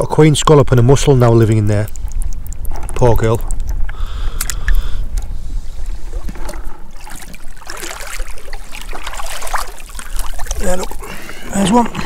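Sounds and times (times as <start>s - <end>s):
feet wading in shallows: 1.8s - 12.0s
seawater splashing: 4.4s - 12.0s.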